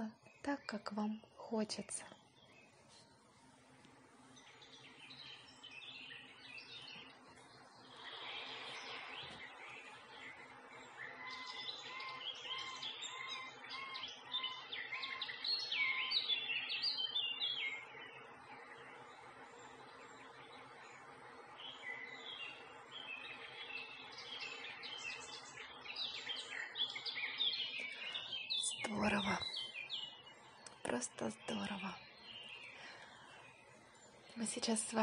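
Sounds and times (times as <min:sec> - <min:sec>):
songbirds chirping and singing: 0:04.2 - 0:35.0.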